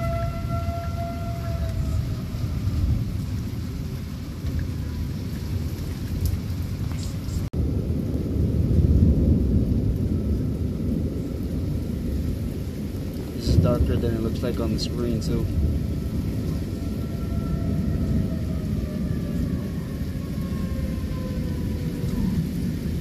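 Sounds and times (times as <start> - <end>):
warning siren wailing: 0.0 - 5.8, 9.4 - 12.0, 15.1 - 23.0
pouring rain: 0.0 - 23.0
rumble of thunder: 0.0 - 23.0.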